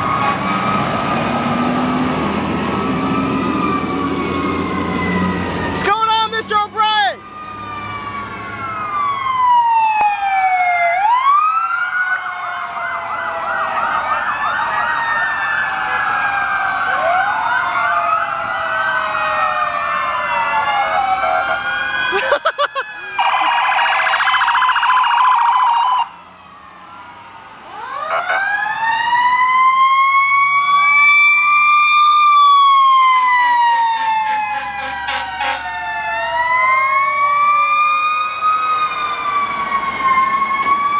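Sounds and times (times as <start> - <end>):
sirens wailing and yelping: 0.0 - 40.9
horn blasts: 34.3 - 35.7.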